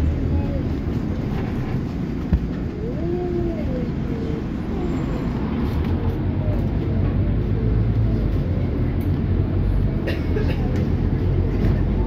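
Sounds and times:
bus engine and road rumble: 0.0s - 12.0s.

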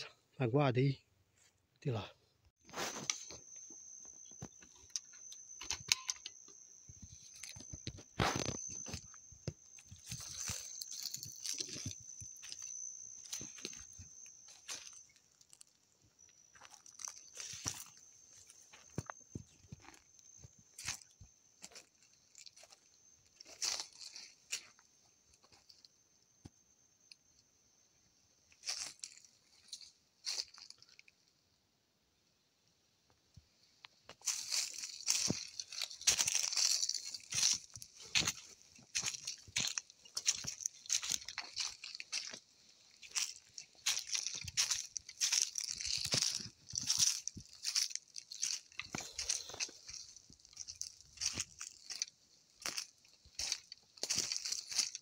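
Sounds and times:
rustles clicks and crackles: 2.6s - 24.8s, 34.1s - 55.0s.

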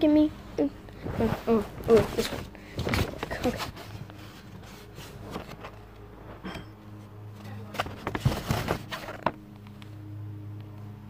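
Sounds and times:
steady low hum: 0.0s - 11.0s
paper rustling: 1.0s - 6.0s, 7.6s - 9.4s.

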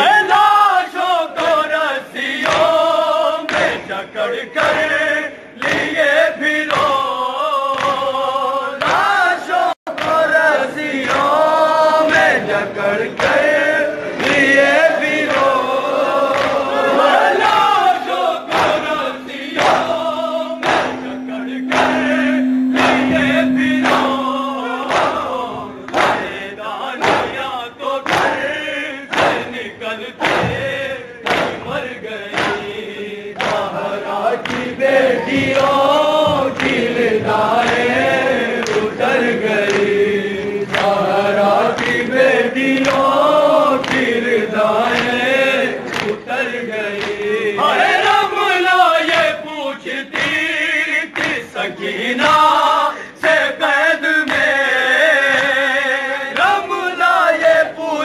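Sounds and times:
men chanting in unison: 0.0s - 58.0s
hands beating chests: 18.5s - 28.4s, 31.2s - 31.6s.

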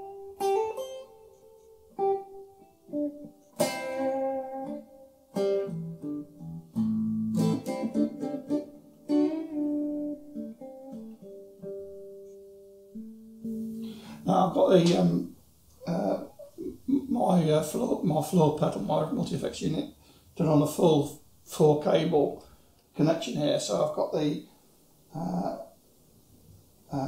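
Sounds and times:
clean electric guitar chords and notes: 0.0s - 14.2s.

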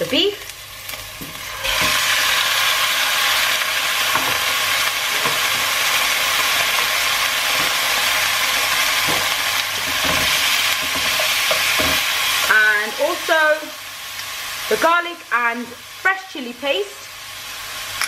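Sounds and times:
meat and onions sizzling in oil: 0.0s - 18.0s
spatula knocking and scraping: 7.5s - 12.1s.

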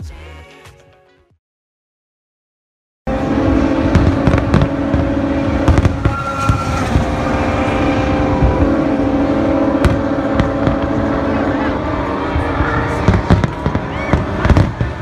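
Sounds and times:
continuous rumble: 3.1s - 15.0s
fireworks bangs and pops: 3.4s - 7.4s, 9.7s - 11.2s, 13.0s - 15.0s.

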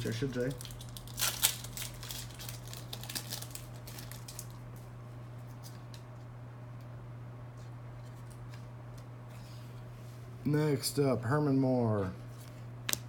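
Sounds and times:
card pack wrapper crinkling: 0.0s - 4.8s
low steady hum: 0.0s - 13.0s.

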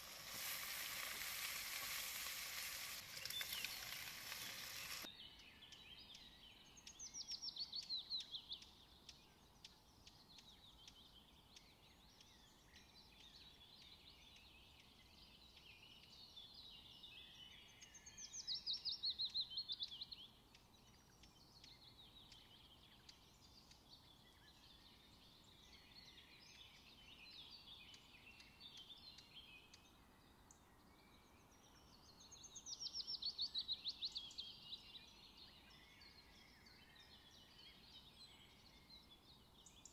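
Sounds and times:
faint bird chirps: 0.0s - 39.9s
songbird singing: 0.0s - 39.9s.

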